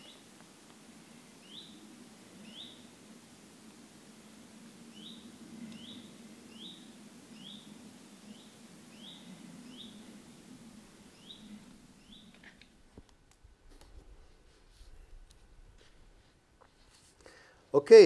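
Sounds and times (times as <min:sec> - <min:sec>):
faint low hum: 0:00.0 - 0:18.0
small bird rising chirp: 0:11.1 - 0:12.5.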